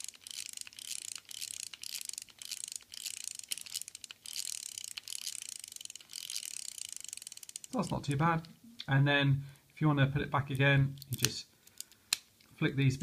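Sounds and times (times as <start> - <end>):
toy gear mechanism clicking and whirring: 0.0 - 8.1.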